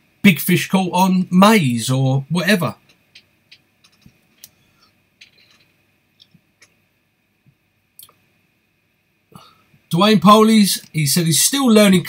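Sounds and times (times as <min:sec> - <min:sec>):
small clicks and ticks: 0:02.8 - 0:06.8.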